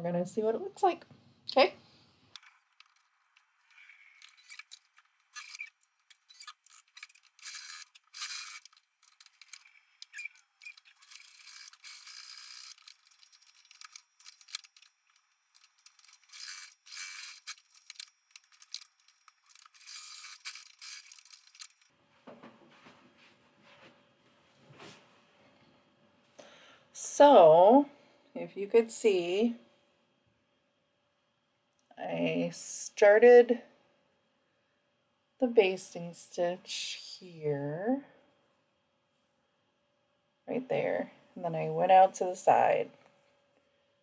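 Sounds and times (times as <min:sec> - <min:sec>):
sewing machine stitching: 0:06.3 - 0:14.8.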